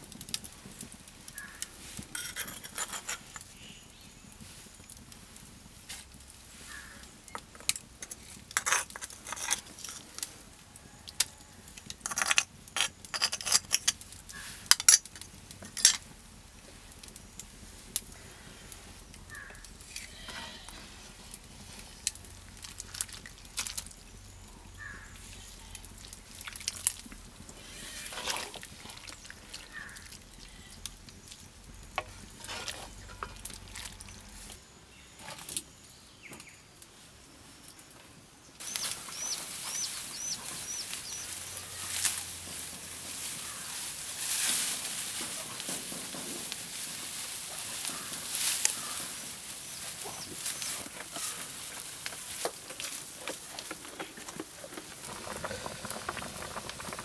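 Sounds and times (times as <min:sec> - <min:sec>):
wooden spoon stirring in wok: 0:26.2 - 0:30.4, 0:31.8 - 0:34.4, 0:38.6 - 0:57.0.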